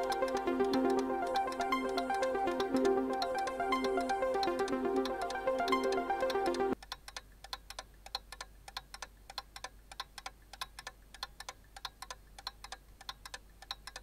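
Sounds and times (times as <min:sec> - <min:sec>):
background music: 0:00.0 - 0:06.8
clock ticking: 0:00.0 - 0:14.0.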